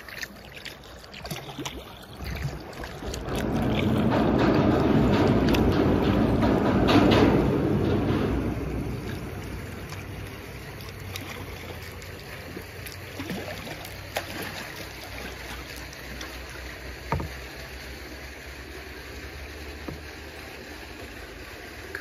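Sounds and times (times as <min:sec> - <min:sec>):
sharp splashes: 0:00.0 - 0:06.2, 0:08.1 - 0:19.0
paddle strokes in water: 0:00.0 - 0:21.7
water dripping: 0:00.0 - 0:22.0
low hum: 0:02.0 - 0:22.0.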